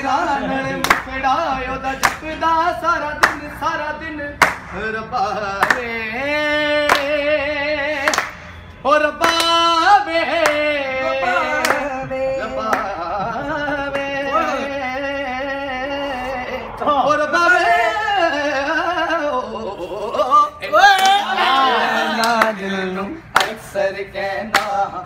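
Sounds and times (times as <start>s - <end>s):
man singing unaccompanied: 0.0s - 8.1s, 8.8s - 25.0s
hand clap keeping time: 2.0s - 2.3s, 3.2s - 3.5s, 4.4s - 4.8s, 6.8s - 7.2s, 8.0s - 8.5s, 9.2s - 9.6s, 23.3s - 23.6s, 24.5s - 24.8s.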